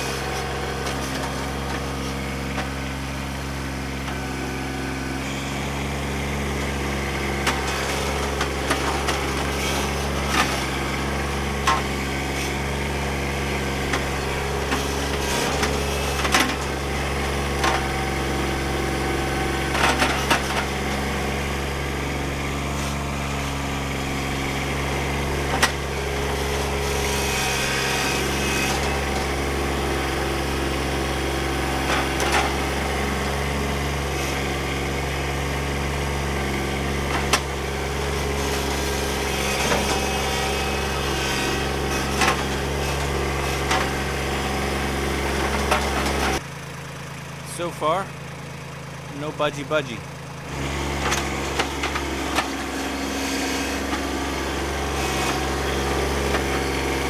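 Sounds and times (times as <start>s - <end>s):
tractor diesel engine running: 0.0s - 57.0s
loader bucket knocks and clanks: 0.2s - 2.9s, 6.5s - 12.9s, 13.6s - 30.3s, 31.0s - 46.4s.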